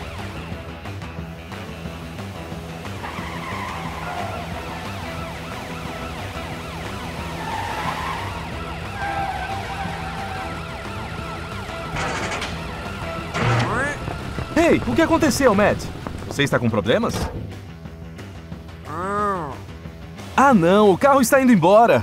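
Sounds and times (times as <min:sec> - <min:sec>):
car engine: 0:00.0 - 0:18.7
background music: 0:00.0 - 0:22.0
police siren: 0:03.0 - 0:14.4.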